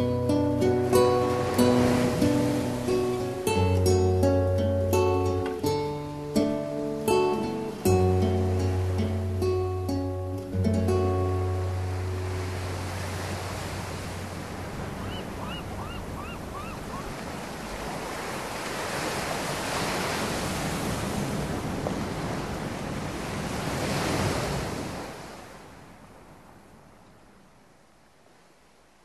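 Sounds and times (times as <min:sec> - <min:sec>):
small bird chirps: 0:15.1 - 0:17.1.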